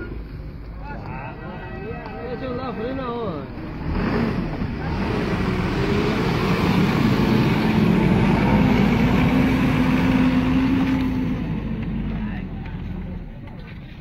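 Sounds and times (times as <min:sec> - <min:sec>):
vehicle engine running loudly: 0:03.6 - 0:13.6.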